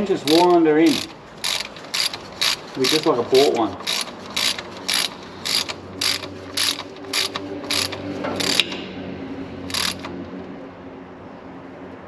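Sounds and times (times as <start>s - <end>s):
socket ratchet clicking: 0.0s - 8.8s, 9.7s - 10.2s.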